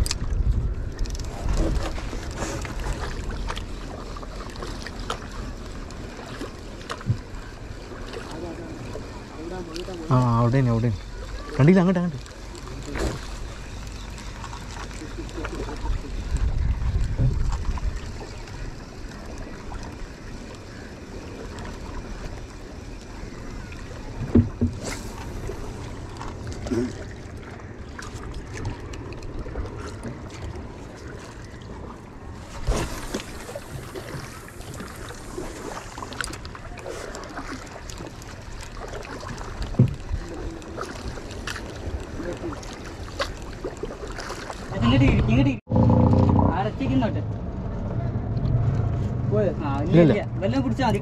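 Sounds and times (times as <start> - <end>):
wind buffeting the microphone: 0.0 - 3.7, 15.6 - 18.8, 44.6 - 51.0
paddle splashing in water: 0.0 - 47.1.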